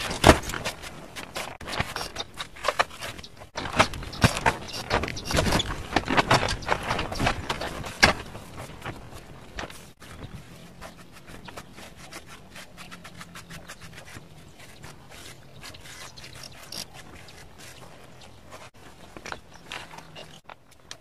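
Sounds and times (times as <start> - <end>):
sponge scratching cement pot: 9.9 - 18.8.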